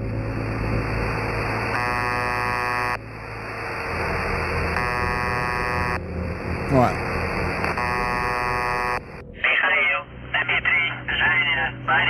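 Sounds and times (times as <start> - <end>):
radio static hissing: 0.4 - 10.9
radio buzzing tone: 0.6 - 9.2.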